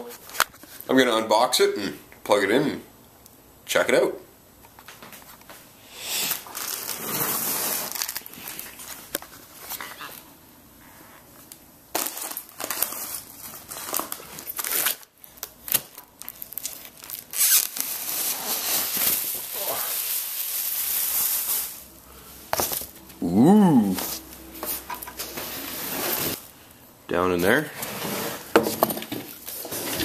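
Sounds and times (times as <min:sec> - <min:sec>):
cardboard and plastic crinkling: 0:06.3 - 0:10.3, 0:11.4 - 0:20.1.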